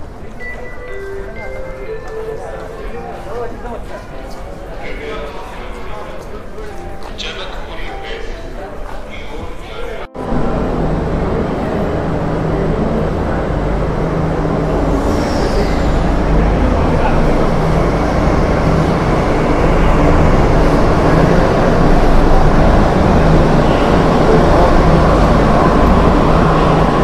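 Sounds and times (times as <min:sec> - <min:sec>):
train rumbling past: 0:00.0 - 0:27.0
falling whine: 0:10.2 - 0:27.0
high squeal: 0:14.6 - 0:21.0.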